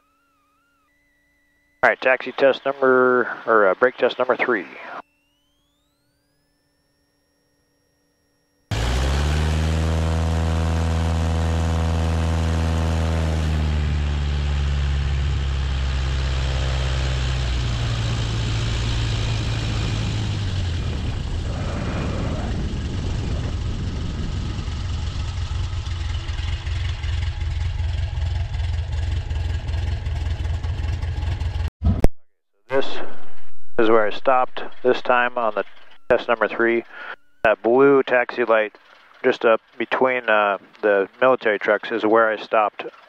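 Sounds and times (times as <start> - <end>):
light aircraft engine and propeller: 0.0 - 31.7, 33.8 - 43.0
wind rushing: 18.0 - 25.8.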